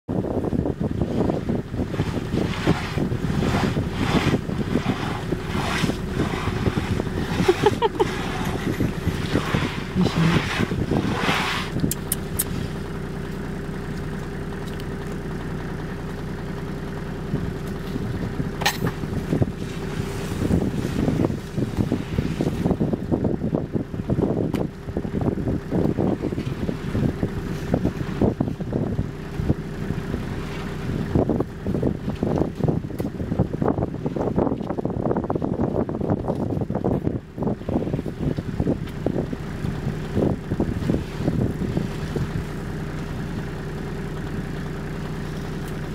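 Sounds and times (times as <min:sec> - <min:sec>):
wind rumble on microphone: 0:00.1 - 0:45.9
elephant hide scraping on bark: 0:01.8 - 0:12.8, 0:19.1 - 0:22.8.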